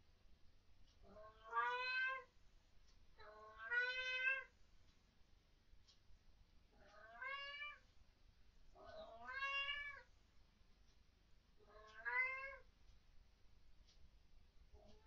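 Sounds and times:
cat meowing: 1.1 - 2.3, 3.2 - 4.5, 6.8 - 7.8, 8.8 - 10.1, 11.6 - 12.6.

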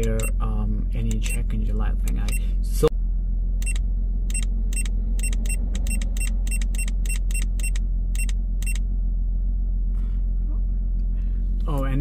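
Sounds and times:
car engine idling: 0.0 - 12.0
short electronic beeps: 3.6 - 8.8.

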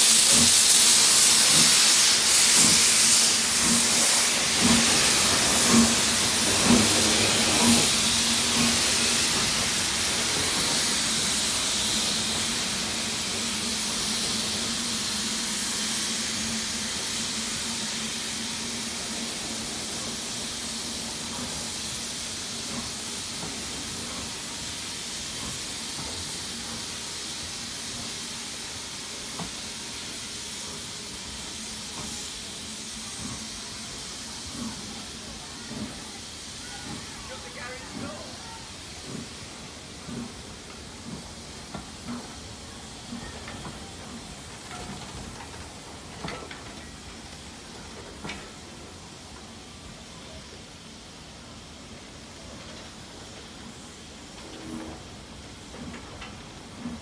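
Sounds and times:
steam hissing: 0.0 - 57.0
rolling coaches humming: 0.1 - 57.0
wheel clicks over rail joints: 44.6 - 47.0.

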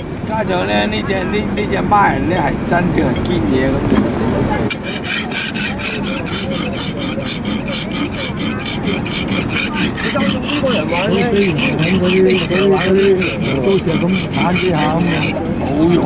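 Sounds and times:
knife scraping on whetstone: 4.7 - 15.8.

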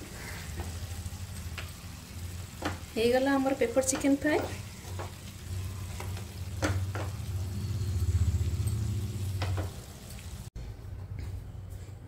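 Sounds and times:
food sizzling in a frying pan: 0.0 - 10.5
spatula tapping a pan: 2.6 - 2.9, 3.8 - 5.3, 5.9 - 7.3.

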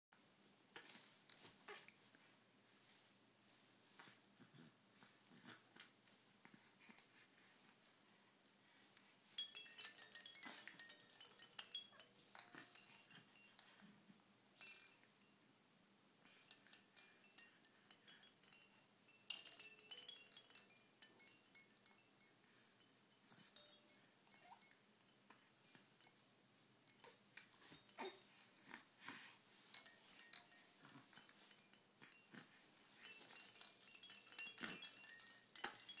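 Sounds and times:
hanging toys clinking and jingling: 0.8 - 2.0, 7.9 - 15.4, 16.3 - 36.0.

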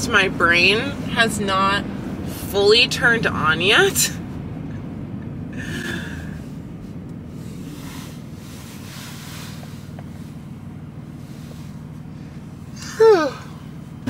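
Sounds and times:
vehicle road and engine noise: 0.0 - 14.0
person sighing: 5.6 - 6.4.

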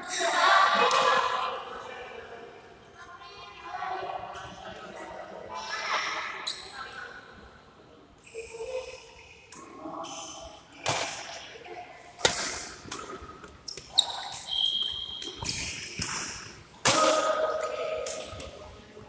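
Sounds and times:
rackets hitting shuttlecock: 10.8 - 11.4, 12.2 - 18.6.

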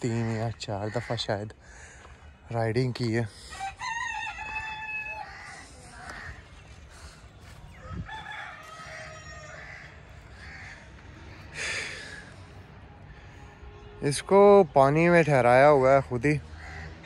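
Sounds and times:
rooster crowing: 3.5 - 5.6, 7.7 - 10.6.

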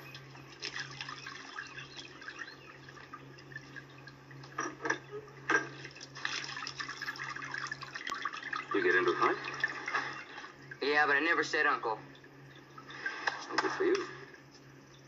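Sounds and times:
water splashing and dripping: 0.0 - 10.8.

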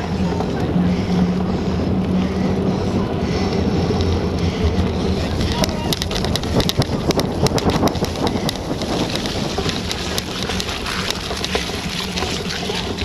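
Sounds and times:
wind buffeting microphone: 0.0 - 13.0
bicycle rolling over grass track: 2.2 - 13.0
bike rattling clicks: 3.4 - 13.0.

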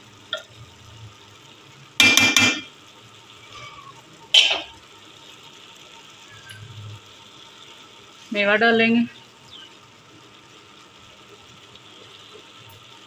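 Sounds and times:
metal spoon clanking on pot: 2.0 - 2.7, 4.4 - 4.7.

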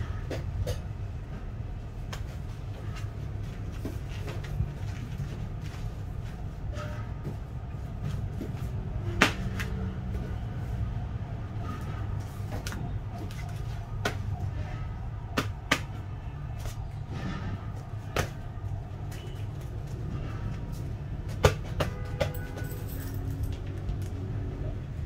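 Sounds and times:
gloves tapping and slapping: 15.4 - 16.0.

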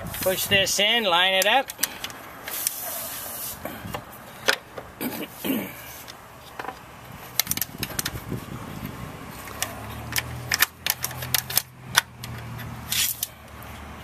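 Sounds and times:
light metallic clicks and rattles: 6.0 - 8.2, 9.4 - 13.7.

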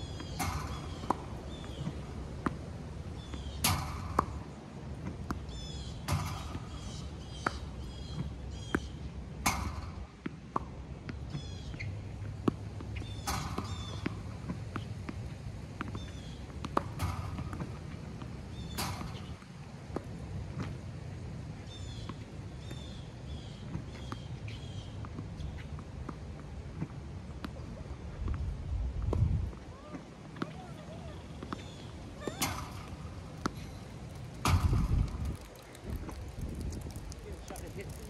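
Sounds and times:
small birds chirping: 0.0 - 2.2, 3.1 - 4.5, 5.3 - 9.1, 11.1 - 12.1, 15.8 - 16.5, 21.6 - 25.8, 30.5 - 38.0
tennis ball bouncing: 0.1 - 20.8, 29.0 - 38.0
racket striking ball: 0.2 - 5.4, 6.0 - 7.6, 12.4 - 15.2, 15.8 - 20.1, 31.4 - 35.7
tennis ball machine firing: 32.2 - 35.5.

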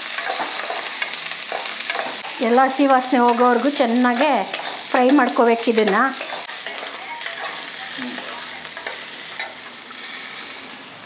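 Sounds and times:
food sizzling in hot oil: 0.0 - 11.0
ladle scraping and tapping pan: 4.2 - 9.7.

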